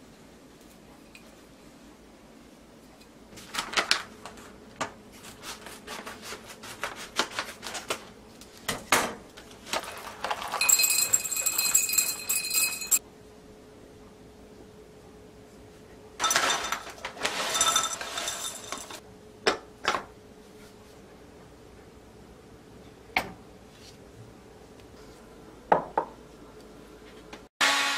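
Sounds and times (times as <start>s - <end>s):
foil bag crinkling: 3.4s - 4.6s, 9.4s - 11.1s
coffee beans rattling into glass: 9.8s - 13.0s, 16.2s - 19.0s.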